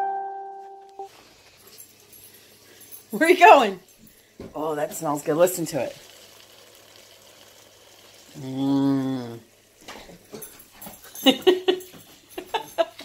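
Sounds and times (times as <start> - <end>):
faint sizzling in waffle maker: 1.1 - 10.8.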